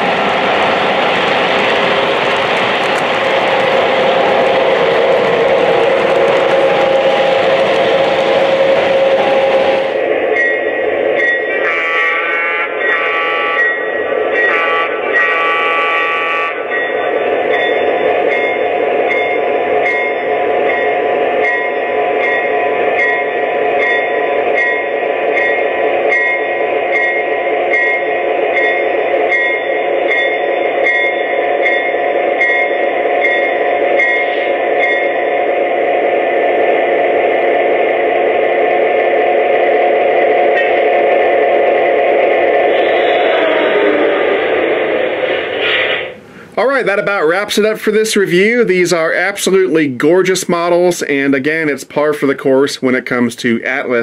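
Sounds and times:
model diesel engine sound: 0.0 - 10.2
locomotive bell ringing: 3.3 - 35.4
train horn blasts: 11.6 - 13.8, 14.4 - 16.7.

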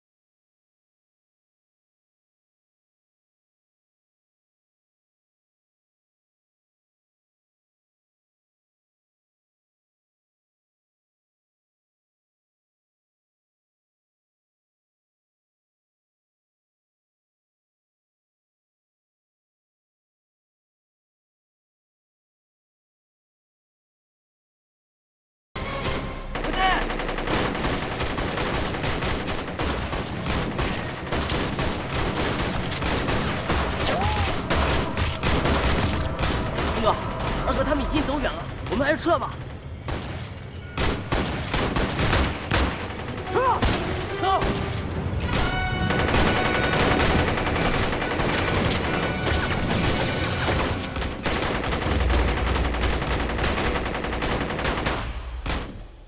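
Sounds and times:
rifle and machine-gun fire: 26.3 - 56.0.

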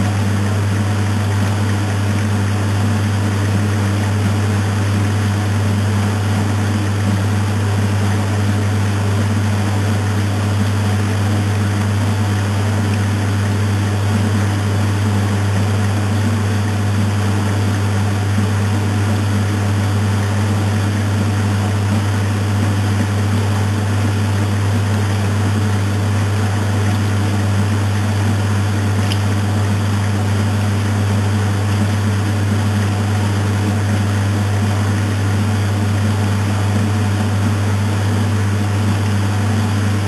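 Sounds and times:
washing machine motor hum: 0.0 - 40.0.

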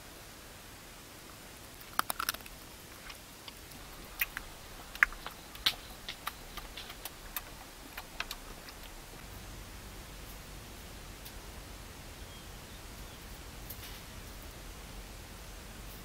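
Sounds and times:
faint hiss: 0.0 - 16.0
chewing and biting crunches: 1.8 - 9.4.

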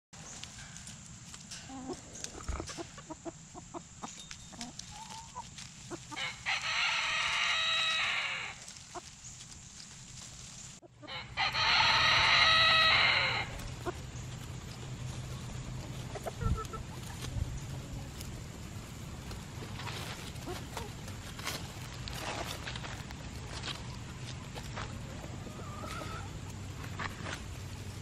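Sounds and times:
chickens clucking softly: 1.6 - 9.2, 10.8 - 18.8, 19.7 - 27.5
rooster crowing: 6.1 - 8.6, 11.0 - 13.6.

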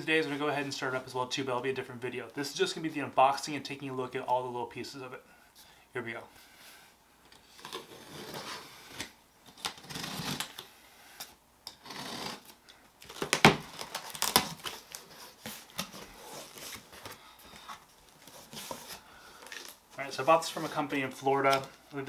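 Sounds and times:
packing tape pulled off: 7.6 - 17.0
sharp cardboard snaps: 13.0 - 14.7.

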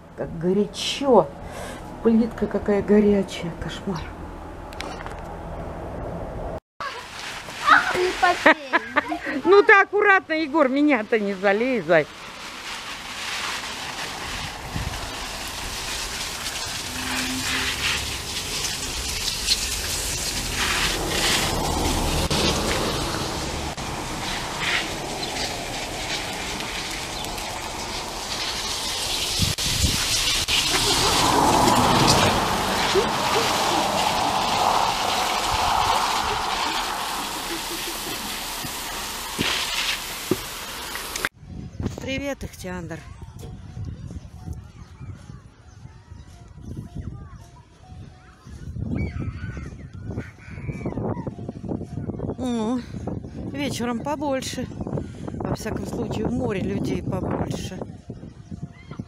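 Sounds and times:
hose nozzle spraying water: 11.2 - 41.3.

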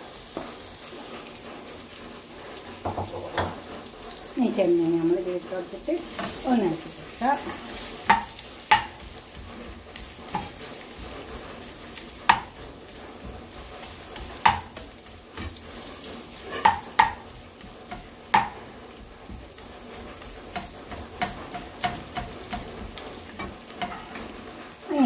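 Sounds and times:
shrimp sizzling in a frying pan: 0.0 - 25.0
steel spoon clinking against pan: 20.5 - 24.2.

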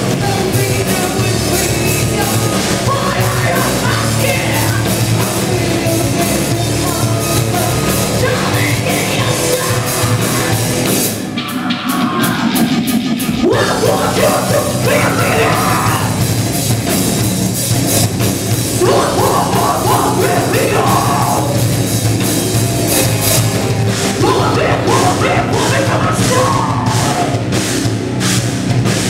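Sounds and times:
heavy metal band playing live: 0.0 - 29.0
vocalist voice sweeping up: 11.3 - 16.2, 18.8 - 21.6, 24.2 - 27.4.

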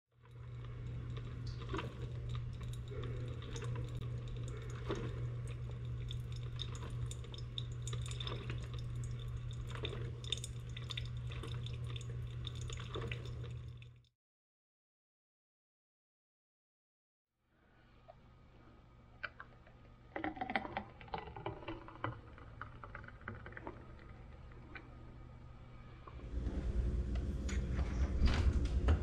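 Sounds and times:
steady low hum: 0.2 - 14.1, 22.0 - 29.0
water dripping: 0.2 - 14.1.

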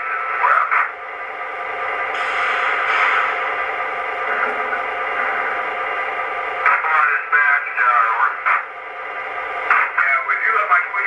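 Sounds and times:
radio static hiss: 0.0 - 1.0, 6.6 - 8.7
tinny radio voice: 0.0 - 1.0, 6.6 - 8.6, 9.7 - 11.0.

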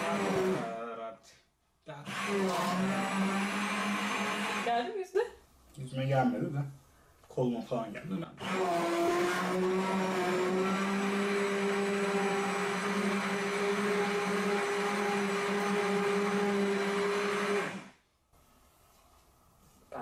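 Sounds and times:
immersion blender whirring: 0.0 - 1.0, 2.0 - 4.9, 8.3 - 18.0.

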